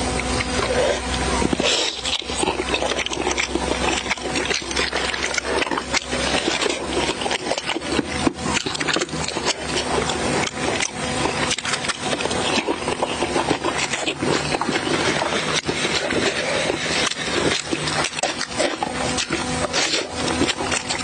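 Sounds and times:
person chewing with wet clicks: 0.0s - 21.0s.

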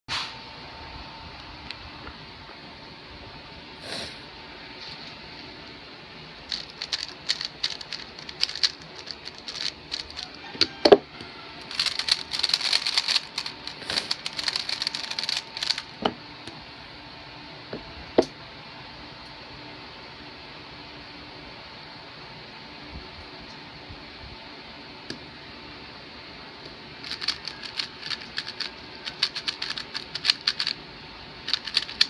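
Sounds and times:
puzzle cube turning clicks: 6.5s - 10.4s, 11.6s - 15.9s, 27.0s - 30.8s, 31.4s - 32.0s
rapid clatter of cube turning: 6.5s - 10.4s, 11.6s - 16.0s, 27.0s - 30.8s, 31.4s - 32.0s.

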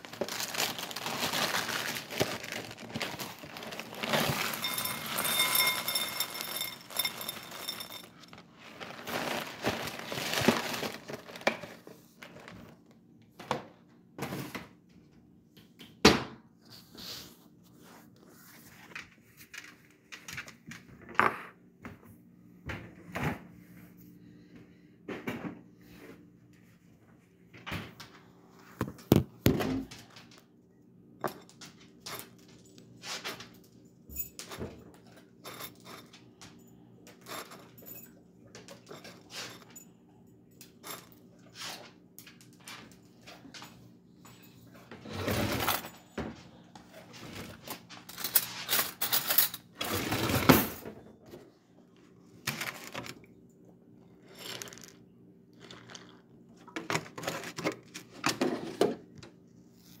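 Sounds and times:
cereal rattling: 0.0s - 11.6s, 54.3s - 55.0s, 55.6s - 56.2s
spoon clinking in bowl: 4.5s - 8.2s.

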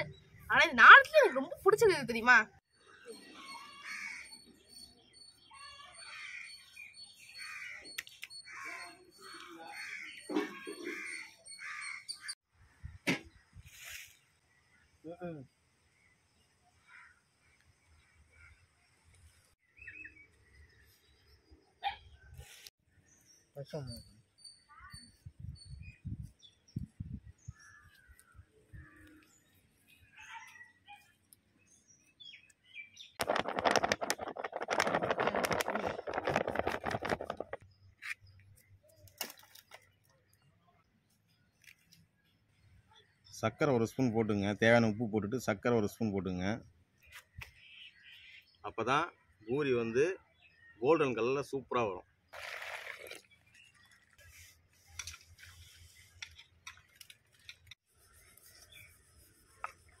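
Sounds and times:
paper bag crackling: 33.2s - 37.6s.

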